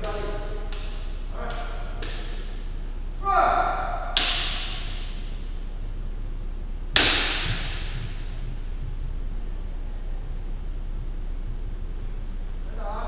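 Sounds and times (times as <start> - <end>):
person shouting: 3.2 - 4.6
bamboo sword strike crack: 4.2 - 5.4, 7.0 - 8.4.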